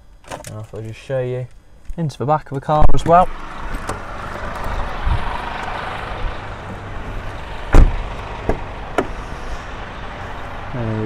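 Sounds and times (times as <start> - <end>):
car door thump: 2.9 - 4.6, 6.6 - 9.2.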